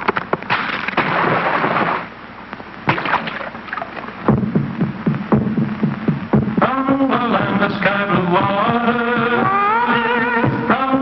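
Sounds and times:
steady drumbeat: 4.2 - 10.8.

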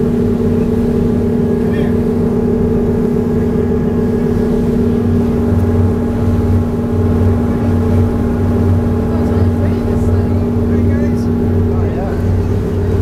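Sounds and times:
boat diesel engines droning: 0.0 - 13.0.

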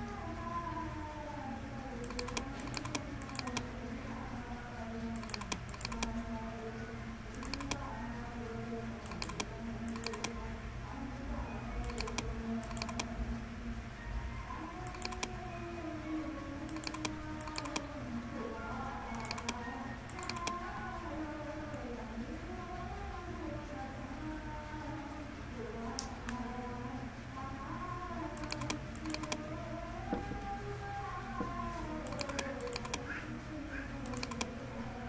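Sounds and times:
steady low hum: 0.0 - 35.0
computer mouse clicks: 2.0 - 3.7, 5.1 - 6.2, 7.3 - 7.9, 9.0 - 10.4, 11.8 - 13.1, 14.8 - 15.4, 16.7 - 17.9, 19.1 - 20.6, 28.4 - 29.5, 32.0 - 33.2, 34.0 - 34.6.

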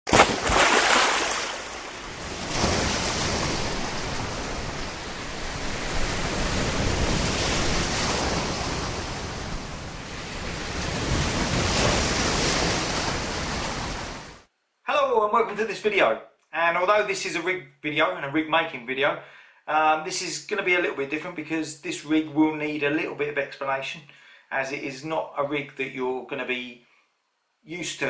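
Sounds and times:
sea surf breaking on shore: 0.1 - 14.4.

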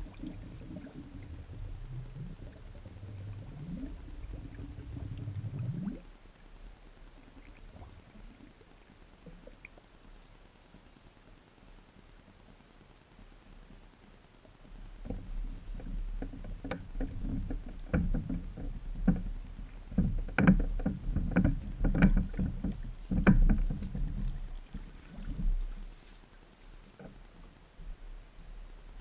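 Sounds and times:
floating deck knocking and booming: 16.2 - 24.5.

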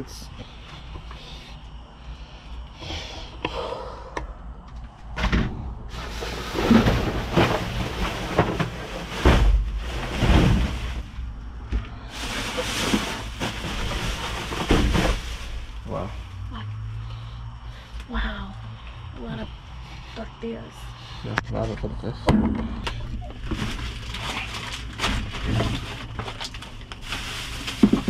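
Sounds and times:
dull knocks and thumps: 5.2 - 11.9, 12.5 - 15.5
plastic bags rustling and crinkling: 5.9 - 16.4, 23.2 - 28.0.

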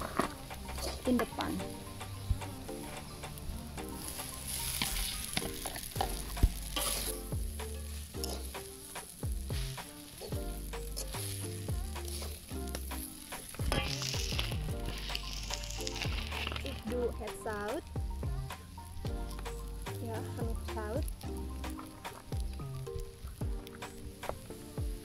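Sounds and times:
noodles sizzling in a wok: 0.0 - 25.0
metal spatula scraping a wok: 2.7 - 16.9.

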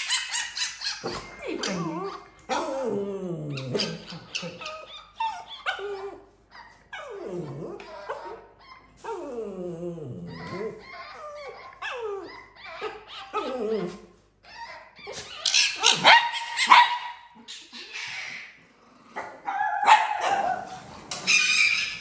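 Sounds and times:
small dogs barking and yipping: 0.0 - 2.8, 3.5 - 9.2, 10.3 - 18.6, 19.2 - 22.0
dog whining: 0.0 - 16.8.

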